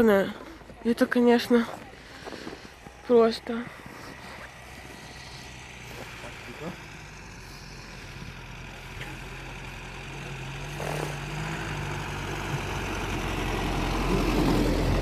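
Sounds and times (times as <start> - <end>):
vehicle engine running: 0.0 - 15.0.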